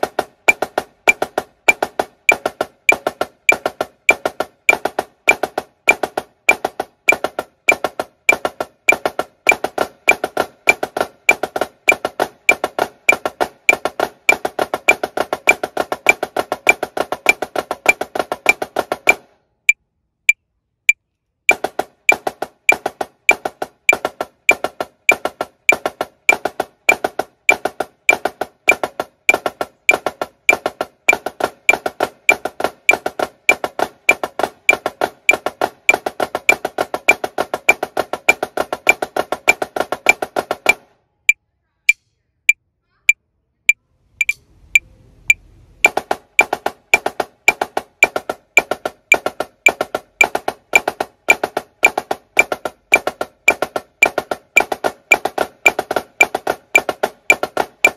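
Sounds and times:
snare drum flam taps: 0.0s - 19.4s, 21.5s - 40.9s, 45.8s - 57.9s
metronome ticking: 0.0s - 42.0s, 44.2s - 44.4s, 45.3s - 57.9s.

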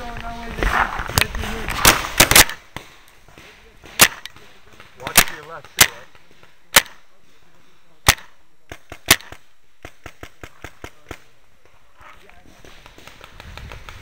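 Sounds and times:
paintball marker pops: 1.1s - 7.0s.

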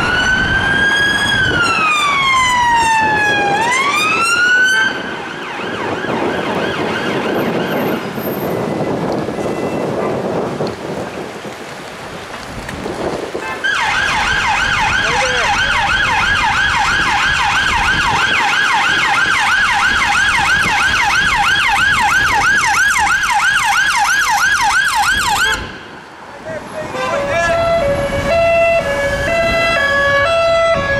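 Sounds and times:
police siren yelp: 0.0s - 8.0s, 13.6s - 25.8s, 27.0s - 30.9s
street traffic noise: 0.0s - 30.9s.

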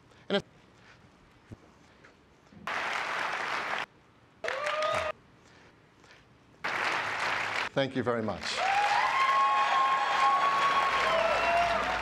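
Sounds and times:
audience applauding: 2.6s - 5.1s, 6.6s - 7.7s, 8.4s - 12.0s
person whooping: 4.4s - 5.2s, 8.6s - 12.0s.

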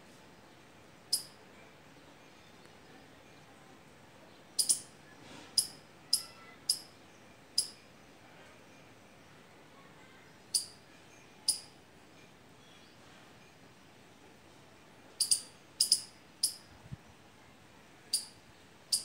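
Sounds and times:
squirrel chirping: 1.1s - 1.4s, 4.6s - 4.9s, 5.6s - 6.9s, 7.6s - 7.8s, 10.5s - 10.8s, 11.5s - 11.7s, 15.2s - 16.6s, 18.1s - 19.0s.

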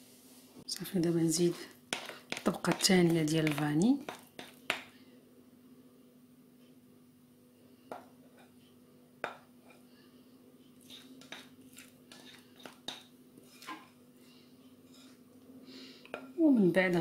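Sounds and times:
faint steady hum: 0.0s - 17.0s
spatula scraping a bowl: 1.9s - 4.6s, 10.8s - 13.9s, 14.8s - 15.2s.

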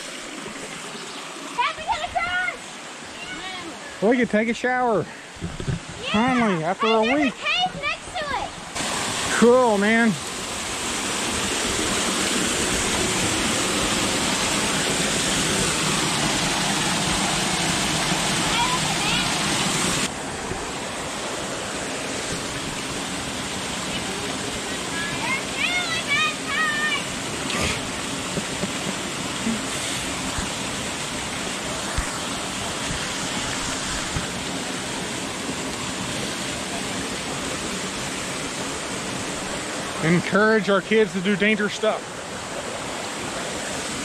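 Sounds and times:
small waterfall rushing: 0.0s - 44.0s.

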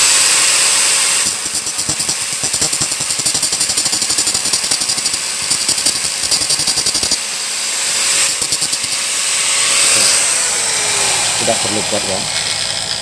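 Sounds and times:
angle grinder grinding metal: 4.7s - 13.0s.

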